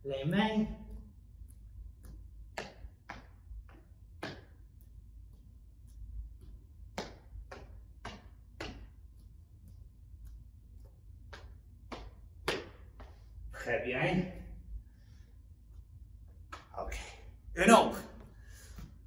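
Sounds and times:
low room hum: 0:00.0 - 0:19.0
hands and sneakers tapping wooden floor: 0:00.8 - 0:13.2.

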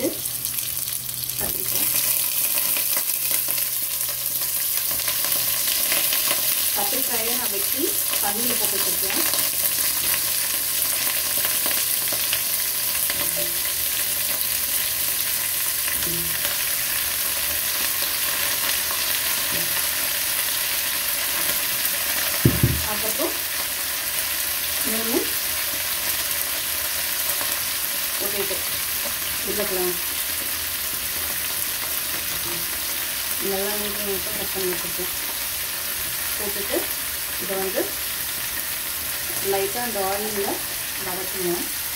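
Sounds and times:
vegetables sizzling in hot oil: 0:00.0 - 0:41.9
sharp double knock: 0:22.4 - 0:22.9.

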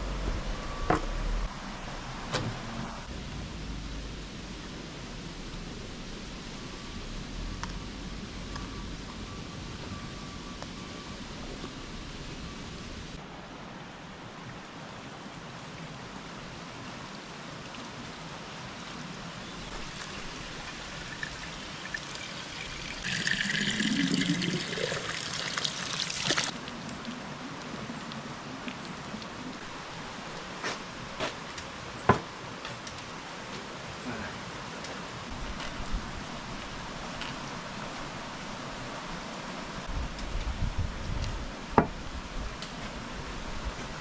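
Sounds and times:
liquid pouring into container: 0:19.8 - 0:26.5.

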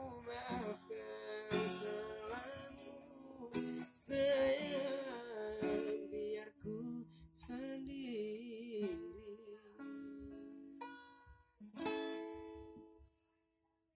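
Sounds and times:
man singing softly: 0:00.0 - 0:10.4
acoustic guitar picking: 0:00.0 - 0:13.2.

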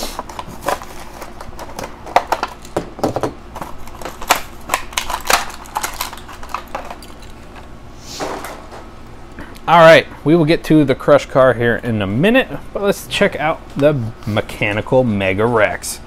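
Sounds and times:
plastic packaging crackling and tearing: 0:00.0 - 0:02.7, 0:03.6 - 0:07.3.

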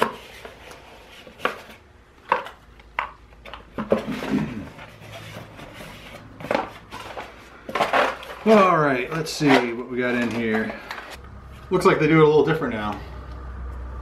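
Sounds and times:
paper and packaging rustling: 0:00.0 - 0:11.2.

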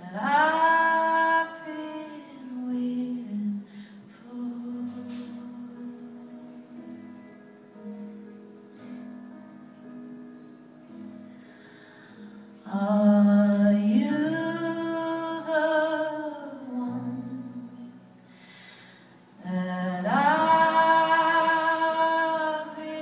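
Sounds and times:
woman singing: 0:00.0 - 0:07.0, 0:12.6 - 0:18.0, 0:19.4 - 0:23.0
piano accompaniment: 0:00.0 - 0:23.0.

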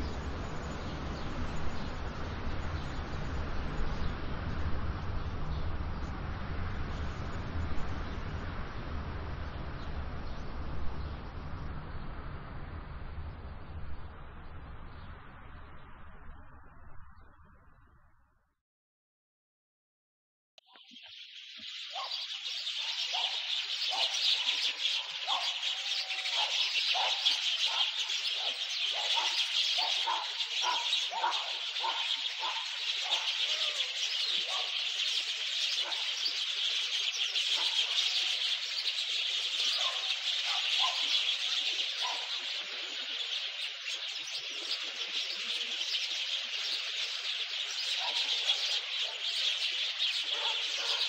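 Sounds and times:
birds chirping and singing: 0:20.7 - 0:51.0
short low bird calls: 0:21.8 - 0:34.8.

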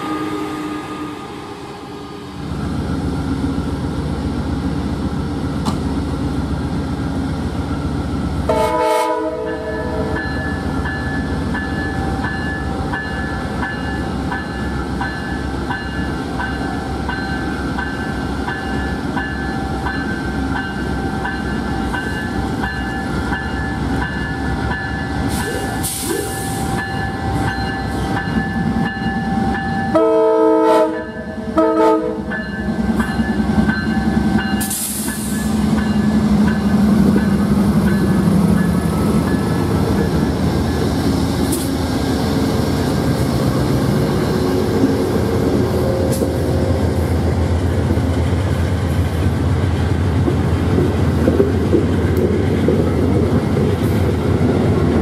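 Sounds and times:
train air horn blasts: 0:00.0 - 0:02.0, 0:08.5 - 0:10.2, 0:29.9 - 0:32.3
locomotive engine rumbling: 0:00.7 - 0:55.0
air hiss: 0:25.3 - 0:26.8, 0:34.6 - 0:35.7.

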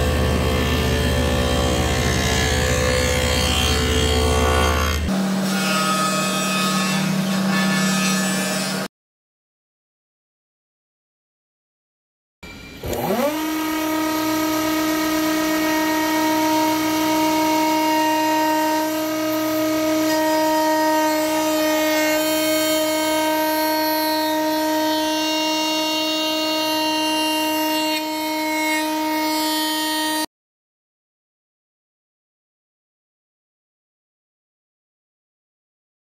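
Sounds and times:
router bit cutting plywood: 0:00.0 - 0:08.9, 0:12.6 - 0:30.2
router motor whining: 0:12.7 - 0:29.0.

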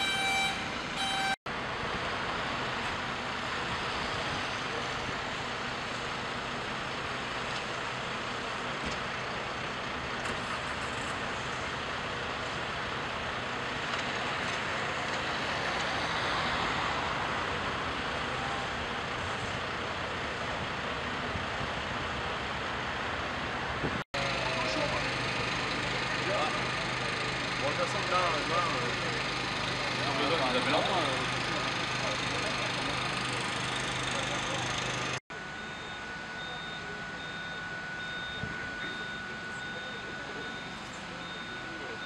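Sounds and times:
fire engines running: 0:00.0 - 0:42.0
pulsed beeping tone: 0:35.4 - 0:42.0.

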